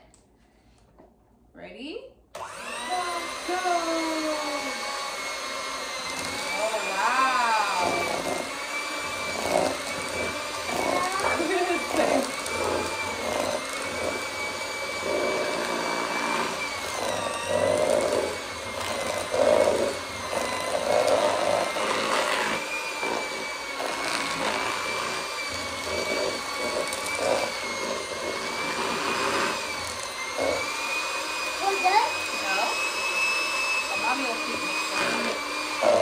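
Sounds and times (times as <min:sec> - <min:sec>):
electric mixer motor whine: 0:02.3 - 0:36.0
beaters churning through dough: 0:02.4 - 0:36.0.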